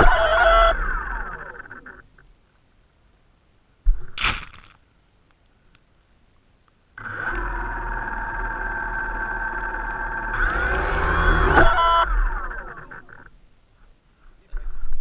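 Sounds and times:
quadcopter motors whining: 0.0 - 2.0, 7.0 - 13.4.

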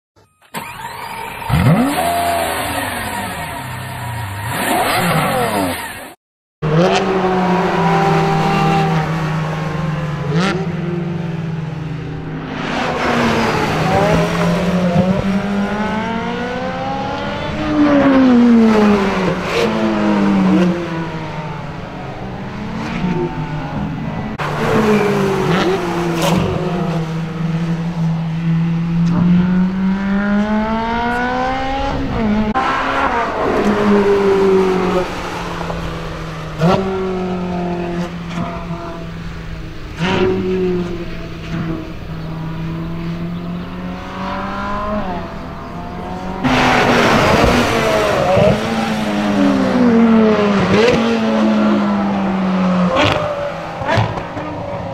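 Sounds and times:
race car engines accelerating: 0.5 - 54.9.

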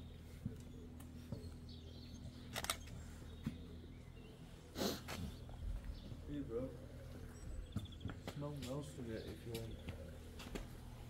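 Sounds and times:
footsteps on stone: 5.0 - 11.0.

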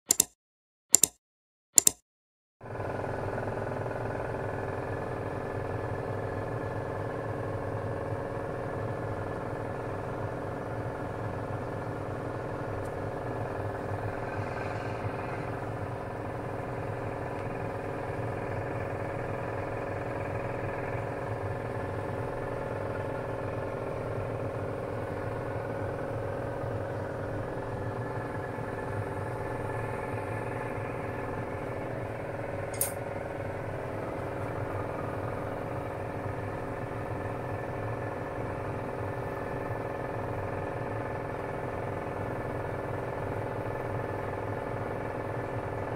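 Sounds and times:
sharp click: 0.1 - 1.2, 1.8 - 2.0, 32.7 - 33.0
kitchen stove humming: 12.4 - 39.8.

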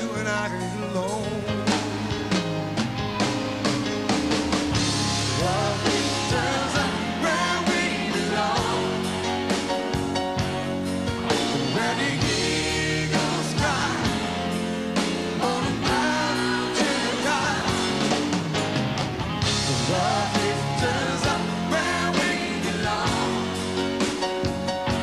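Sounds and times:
man singing into microphone: 0.0 - 1.7, 5.4 - 7.7
pop rock band playing: 0.0 - 25.0.

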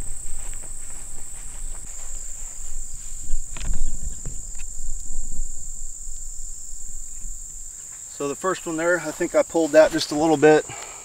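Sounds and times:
low thumps and rustles: 0.0 - 8.1
insects chirring: 0.0 - 11.0.

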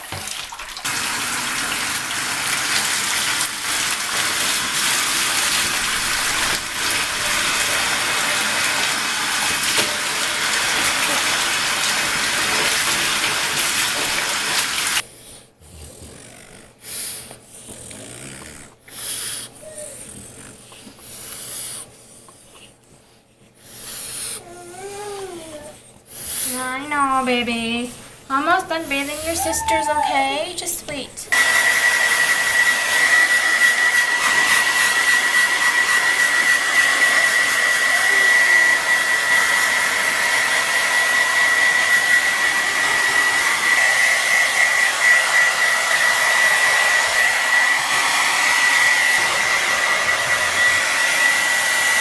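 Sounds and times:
water running into bathtub: 0.0 - 15.0.

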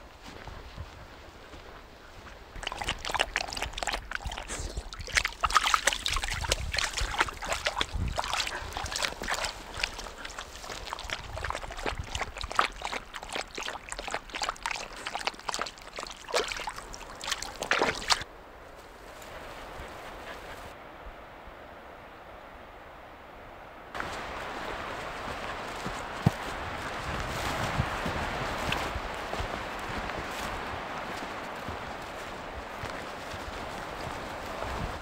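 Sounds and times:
dog splashing through water: 2.6 - 18.2.

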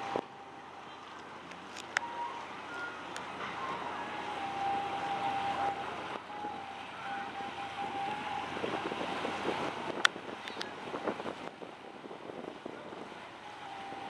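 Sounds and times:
boat diesel engine running: 0.0 - 14.0
wind on microphone: 0.0 - 14.0
steady high tone: 2.0 - 9.8.

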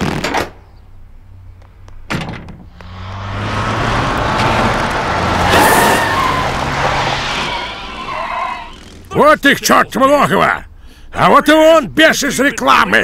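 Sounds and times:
car engine humming: 1.0 - 11.0.

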